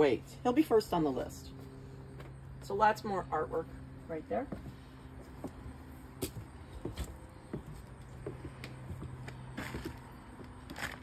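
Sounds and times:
steady low hum: 0.0 - 11.0
footsteps on wooden steps: 1.5 - 2.8, 4.4 - 11.0.

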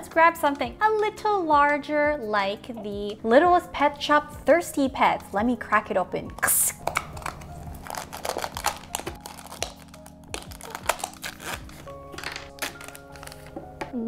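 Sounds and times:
soft background music: 0.0 - 14.0
plastic packaging crinkling and tearing: 6.4 - 13.6.

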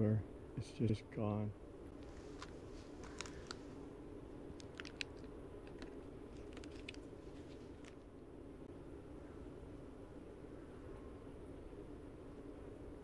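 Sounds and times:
low background hum: 0.0 - 13.0
gravel crunching underfoot: 2.0 - 3.7.

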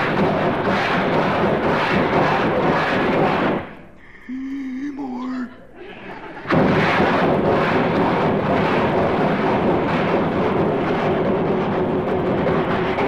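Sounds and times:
man imitating a train with voice: 4.1 - 5.7.

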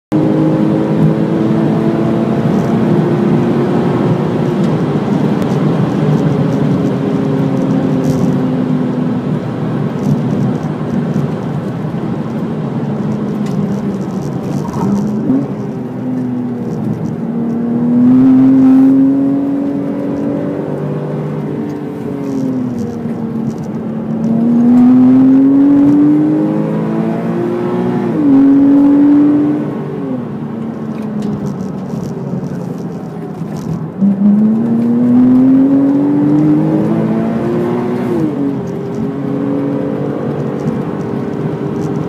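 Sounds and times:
car engine from inside cabin: 0.1 - 42.0
tyre noise: 12.3 - 20.8.

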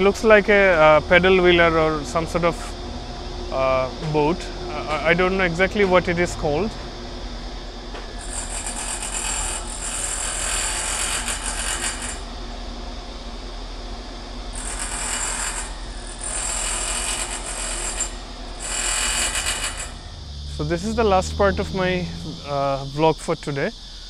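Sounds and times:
cicadas buzzing: 0.0 - 24.0
low rumble: 20.0 - 23.8.

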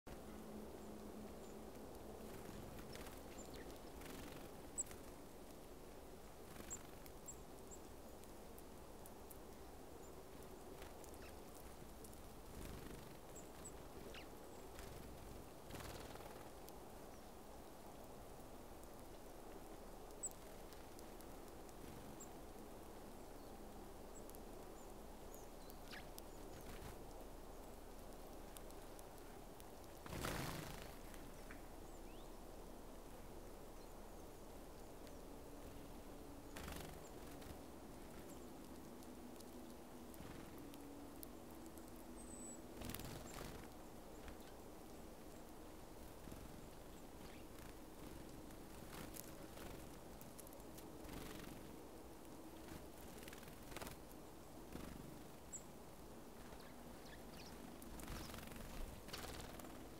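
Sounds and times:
bird wingbeats fluttering: 1.9 - 5.6, 6.2 - 7.7, 10.2 - 16.7, 25.8 - 27.1, 28.0 - 31.6, 35.6 - 40.9, 41.6 - 44.6, 46.0 - 51.8, 52.5 - 55.6, 56.3 - 59.9
faint high bird chirps: 2.3 - 5.0, 12.6 - 15.0, 24.2 - 26.9, 42.1 - 44.6, 56.4 - 59.6
bird wings rustling: 30.0 - 31.3, 52.6 - 54.1, 57.8 - 59.9.

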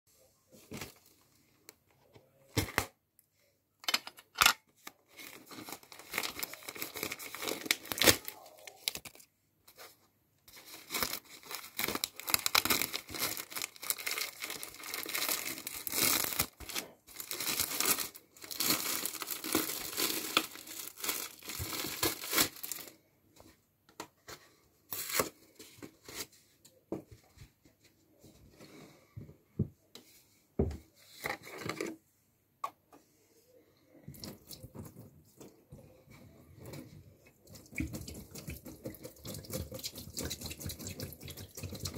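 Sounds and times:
packaging tearing and crumpling: 5.1 - 9.3, 10.6 - 22.9.

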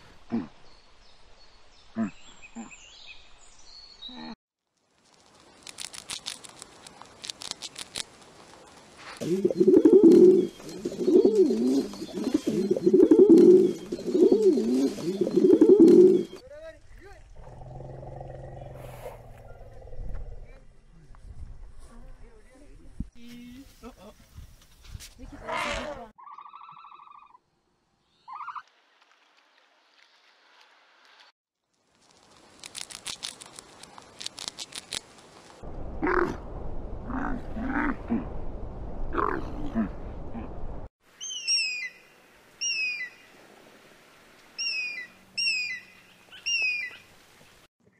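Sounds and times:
pigeons cooing: 9.2 - 16.4.

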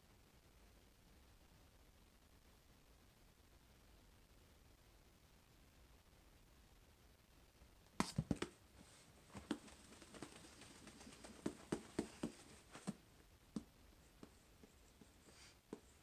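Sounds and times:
marker tapping and scratching: 8.0 - 8.6, 9.3 - 16.0.

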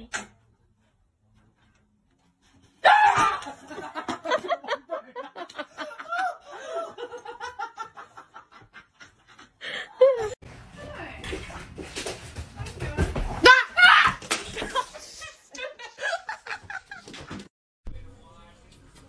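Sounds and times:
person laughing: 3.4 - 10.4.

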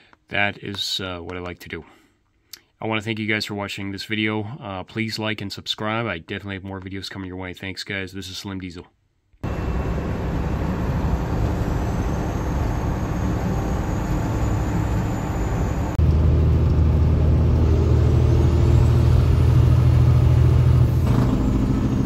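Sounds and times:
road noise: 9.4 - 22.0
truck diesel engine droning: 9.4 - 22.0.

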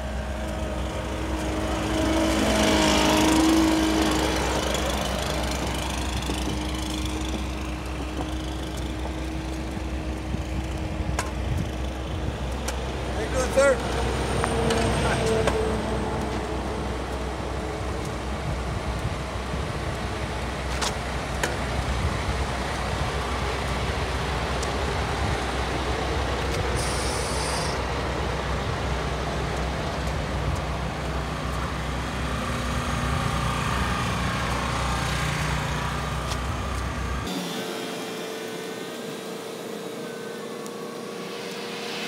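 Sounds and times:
heavy diesel engines droning: 0.0 - 42.0
short hiss: 26.8 - 27.8.

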